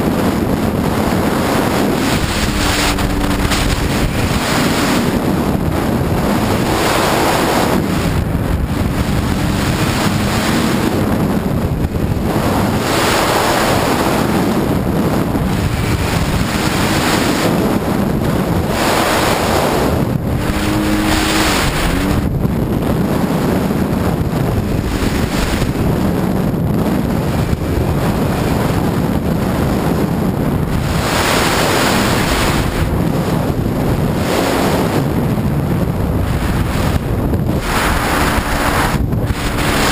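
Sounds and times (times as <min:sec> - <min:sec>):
faint engine hum: 0:00.0 - 0:30.8
wind buffeting microphone: 0:00.0 - 0:39.9
water rushing past hull: 0:00.4 - 0:39.9.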